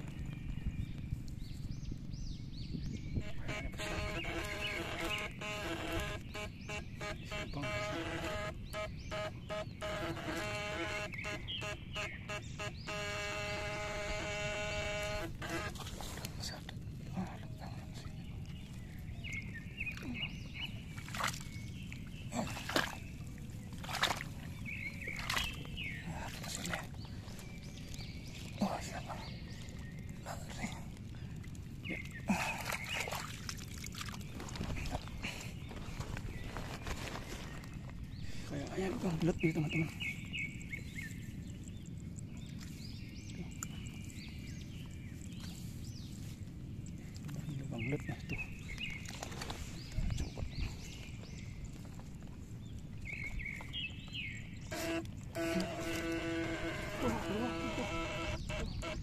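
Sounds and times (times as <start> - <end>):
water splashes: 3.2 - 52.2
hand sloshing in muddy water: 15.6 - 37.7.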